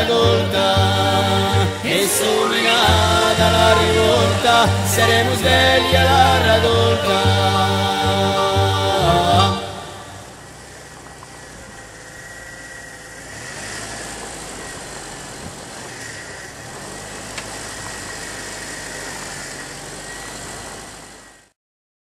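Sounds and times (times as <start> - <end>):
car engine running at low speed: 10.0 - 21.5.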